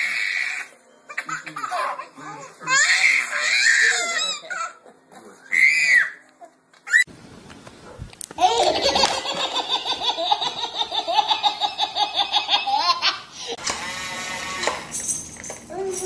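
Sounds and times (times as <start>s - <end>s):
baby laughing: 1.1s - 2.4s, 8.4s - 13.6s
toddler squealing: 5.5s - 6.2s, 6.8s - 7.1s.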